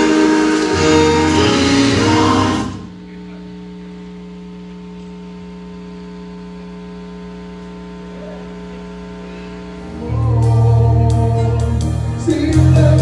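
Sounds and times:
held musical chord: 0.0s - 3.0s.

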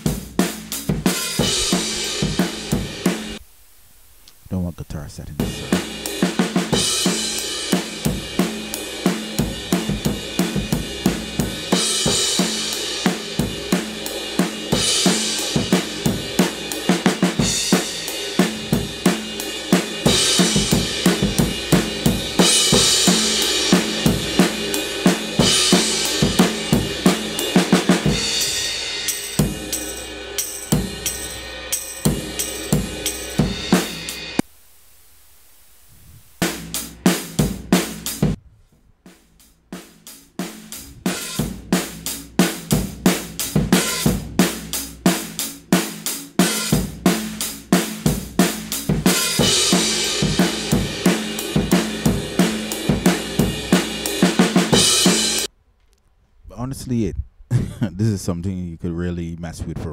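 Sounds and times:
drum groove: 0.0s - 3.5s, 4.2s - 34.5s, 36.2s - 55.5s.

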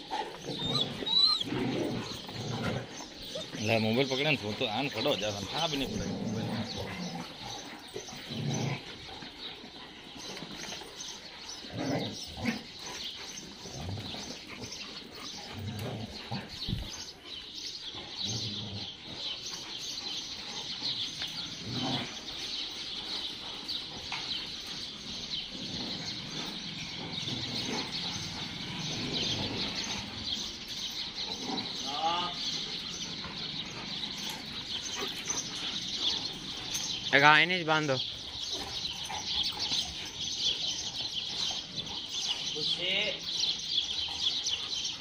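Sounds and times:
small birds chirping: 0.0s - 45.0s
dogs barking: 18.2s - 42.8s.

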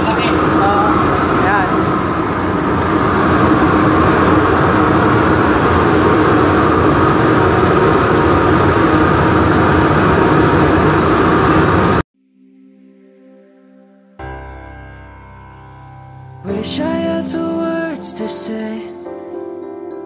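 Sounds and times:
exhaust fans humming and whining: 0.0s - 12.0s.

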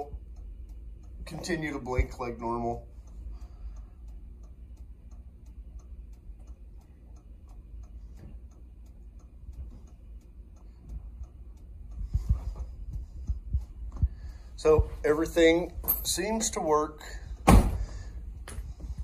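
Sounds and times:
turn signal ticking: 0.0s - 15.8s
low steady hum: 0.0s - 19.0s
low thumps: 11.7s - 16.2s, 17.2s - 19.0s.

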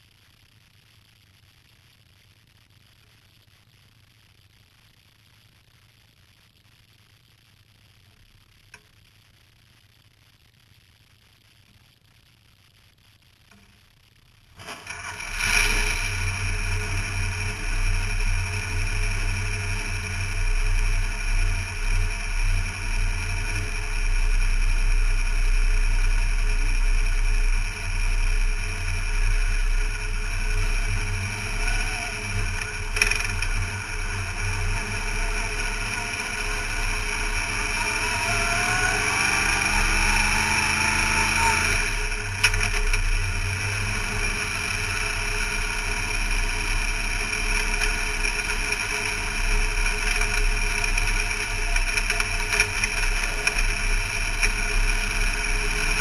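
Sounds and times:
race car engine: 14.6s - 56.0s.

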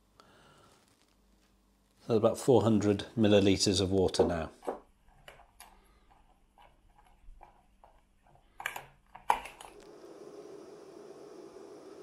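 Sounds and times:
gas stove hissing: 9.6s - 12.0s.

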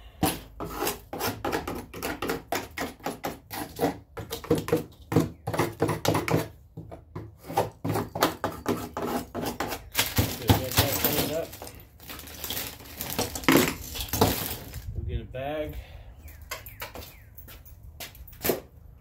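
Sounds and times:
hand scraper scraping wood: 0.1s - 11.6s.

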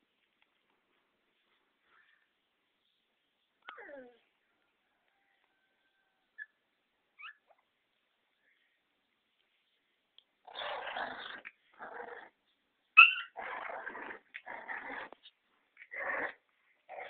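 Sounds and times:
puppy yelp: 7.2s - 7.6s, 13.0s - 13.6s
puppies growling: 10.5s - 12.4s, 13.0s - 15.2s, 15.8s - 17.0s.

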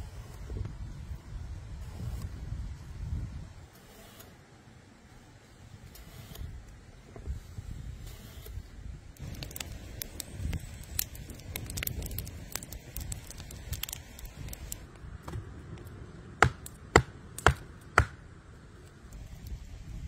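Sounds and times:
loud sharp snaps of fire: 8.1s - 15.0s, 15.7s - 19.8s
wood fire crackling: 8.8s - 20.0s.

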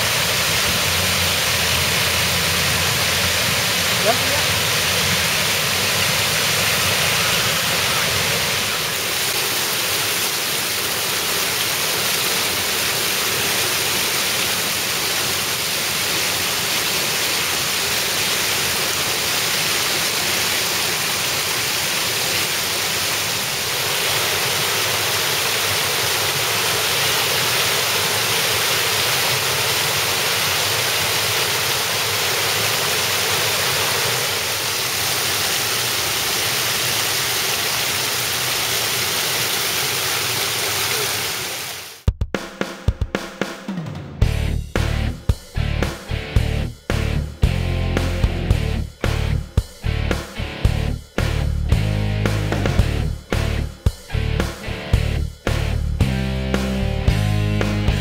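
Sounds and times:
water rushing down a spillway: 0.0s - 42.1s.

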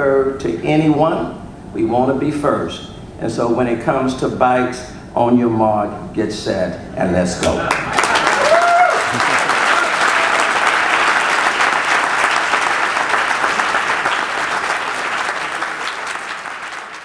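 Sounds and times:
audience applauding: 7.5s - 17.0s.

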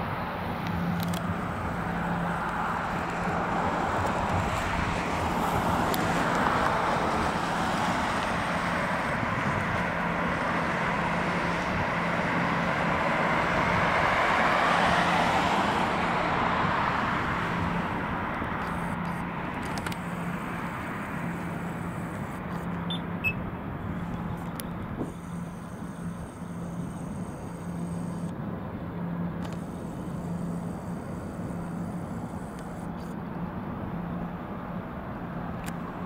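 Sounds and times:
car passing: 0.0s - 28.3s
distant traffic hiss: 0.0s - 36.0s.

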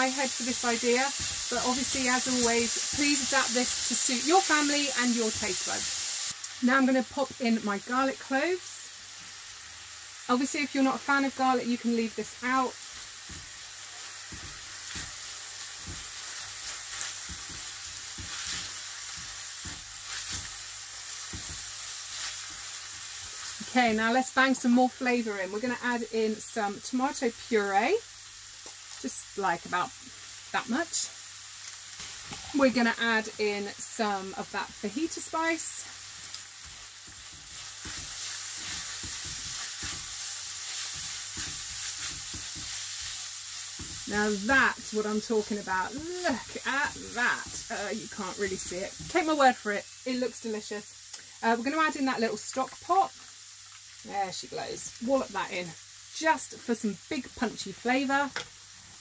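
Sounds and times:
meat sizzling in a pan: 0.0s - 59.0s
spatula scraping a pan: 12.4s - 23.8s, 34.5s - 49.5s
spatula scraping and knocking: 36.6s - 43.2s.

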